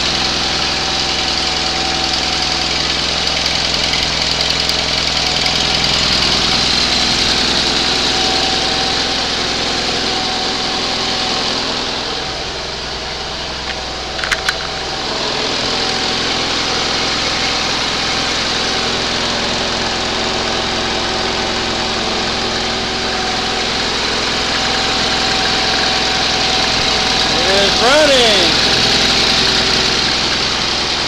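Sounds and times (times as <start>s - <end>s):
sharp clicks: 13.7s - 14.8s.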